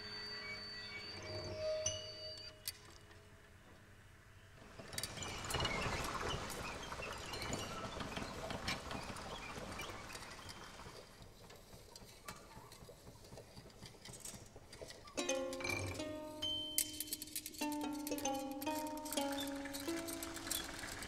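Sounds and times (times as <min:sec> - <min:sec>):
percussion clicks and rattles: 0:06.9 - 0:21.0.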